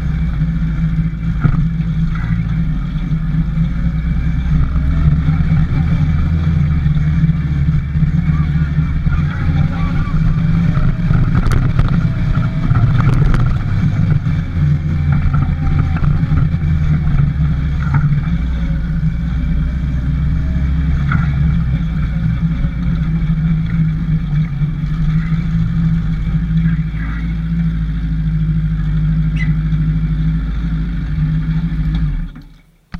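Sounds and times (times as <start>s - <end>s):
motorcycle engine running: 0.0s - 32.9s
knocks and rattles: 8.9s - 19.2s.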